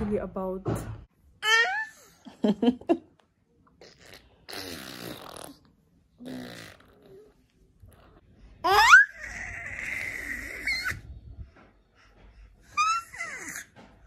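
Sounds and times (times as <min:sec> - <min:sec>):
toddler babbling: 0:01.4 - 0:02.1, 0:08.6 - 0:11.0
toddler squealing: 0:08.6 - 0:11.0, 0:12.8 - 0:13.7.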